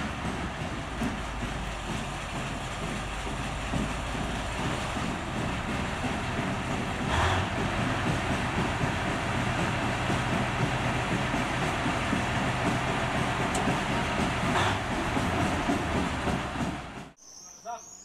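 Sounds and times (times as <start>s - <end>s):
diesel engine rumbling: 0.0s - 17.2s.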